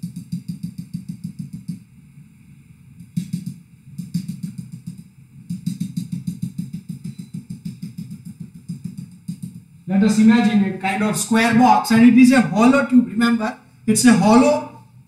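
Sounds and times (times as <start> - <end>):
stylus tapping on whiteboard: 0.0 - 1.8, 3.0 - 9.6.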